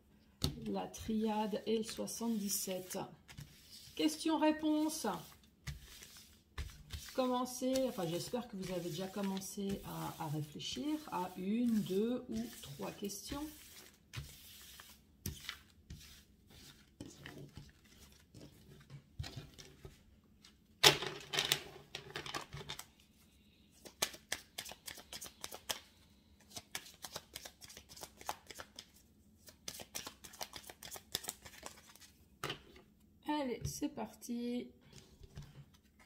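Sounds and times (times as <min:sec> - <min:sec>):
cards swept across wooden table: 0:01.8 - 0:20.0
cards shuffling: 0:23.8 - 0:25.8, 0:26.5 - 0:32.1.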